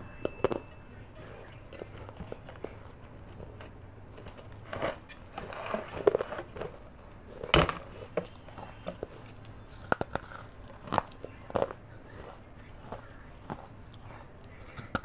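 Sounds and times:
clay crackling and scraping: 0.3s - 15.0s
crunchy clicks of biting clay: 7.6s - 15.0s.

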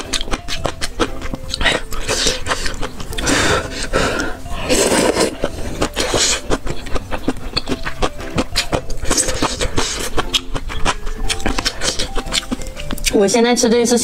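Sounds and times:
noodles being slurped: 0.1s - 13.1s.

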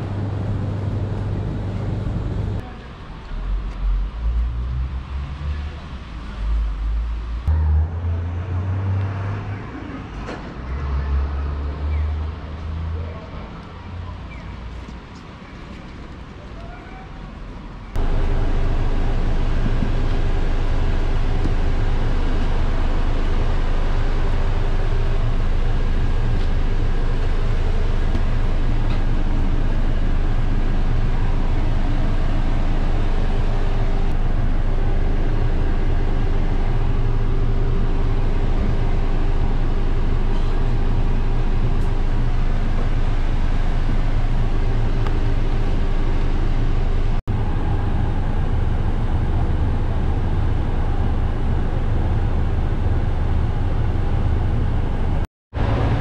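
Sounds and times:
faint steady whine: 0.0s - 2.6s, 18.0s - 54.6s
bus engine idling: 0.0s - 4.2s, 13.2s - 56.0s.

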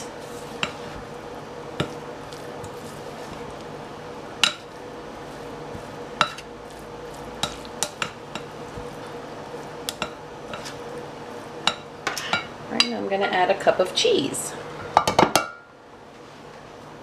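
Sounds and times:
scraping and rustling in a bowl: 0.0s - 3.8s, 4.4s - 12.5s
faint steady hum: 0.0s - 17.0s.

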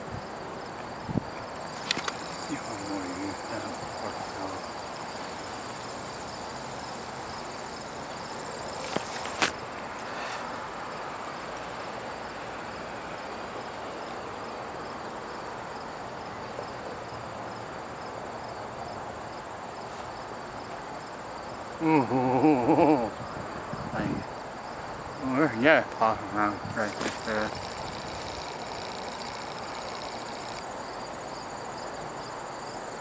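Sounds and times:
steady hiss: 0.0s - 16.4s, 17.2s - 33.0s
insects chirping: 0.0s - 33.0s
sharp clicks: 1.8s - 2.3s.

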